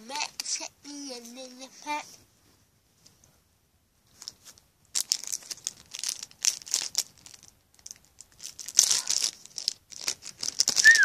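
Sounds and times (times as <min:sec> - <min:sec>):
foil wrapper crinkling and tearing: 0:04.9 - 0:11.0.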